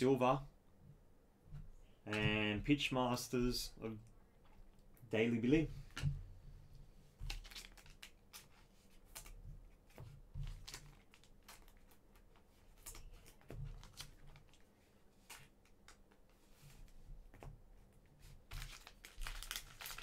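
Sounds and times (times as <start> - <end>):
wrapper rustling: 7.2 - 9.4, 18.4 - 20.0
soft clicks of cards: 9.9 - 17.5.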